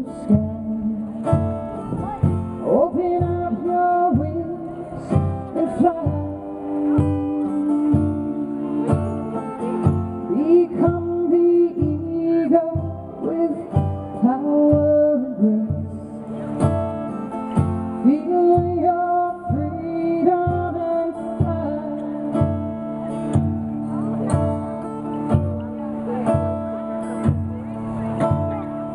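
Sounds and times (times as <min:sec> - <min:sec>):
woman singing: 0:00.0 - 0:01.6, 0:02.5 - 0:16.2, 0:18.0 - 0:22.6
acoustic guitar: 0:00.0 - 0:28.9.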